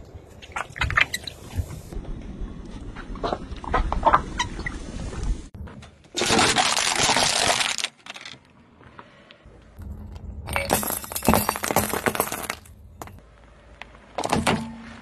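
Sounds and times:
glass bulbs shattering under tyre: 10.5 - 13.2.

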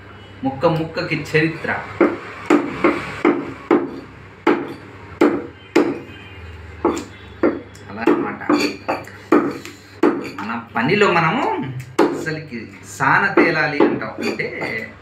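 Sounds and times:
cleaver chopping on wooden block: 2.0 - 6.1, 6.8 - 10.5, 11.9 - 12.3, 13.4 - 14.7.

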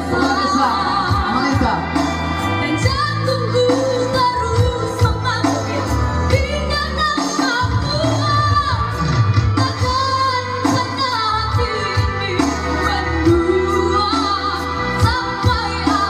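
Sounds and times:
electronic keyboard with bass line: 0.0 - 16.0
girl singing into a microphone: 2.8 - 9.0, 9.6 - 16.0.

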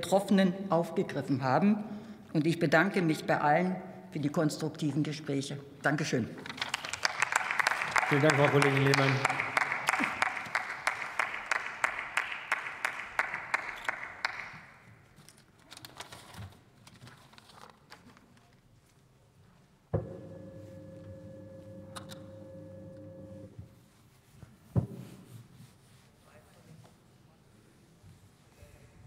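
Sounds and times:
people clapping: 6.4 - 14.8
electric motor humming: 20.0 - 23.5.

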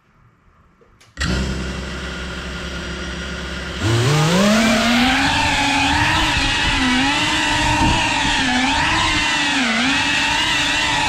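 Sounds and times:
quadcopter motor whine: 1.2 - 11.0.

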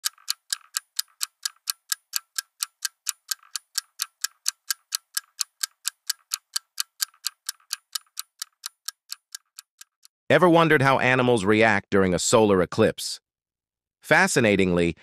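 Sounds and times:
clock-like ticking: 0.0 - 10.1.

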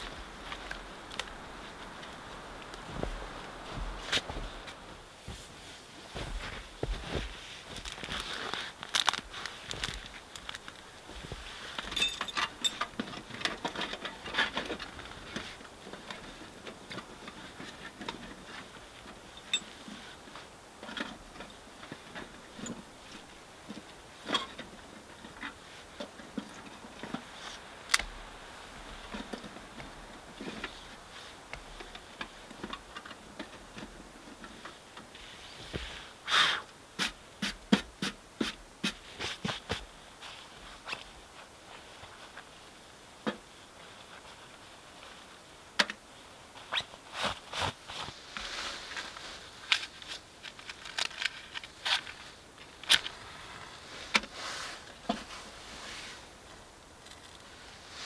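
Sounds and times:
dry twigs snapping: 7.8 - 10.9.

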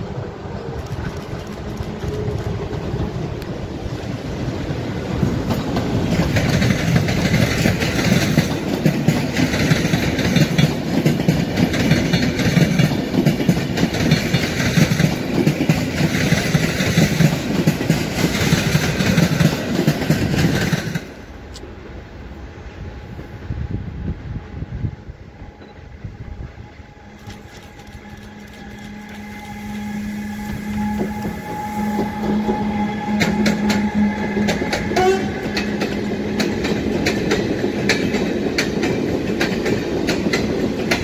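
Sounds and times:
train rumble: 0.0 - 41.0
train wheels clattering over rail joints: 4.7 - 21.3, 30.7 - 41.0.

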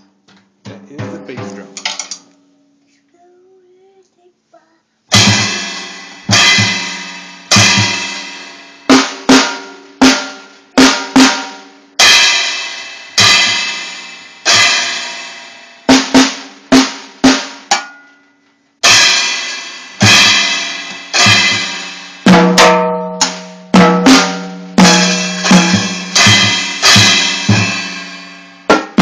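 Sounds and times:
bass drum: 0.6 - 1.8, 5.1 - 8.1, 20.0 - 27.9
drum hits: 0.6 - 2.2, 5.1 - 17.9, 18.8 - 29.0
cymbal crashes: 5.1 - 15.7, 18.8 - 28.8.

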